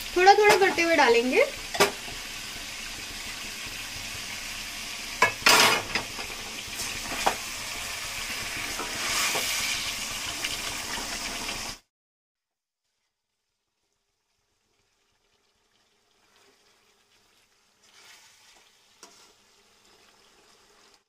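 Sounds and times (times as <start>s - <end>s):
food sizzling in a frying pan: 0.0s - 11.9s, 12.8s - 21.0s
spoon scraping a pan: 8.4s - 9.8s, 17.8s - 19.5s.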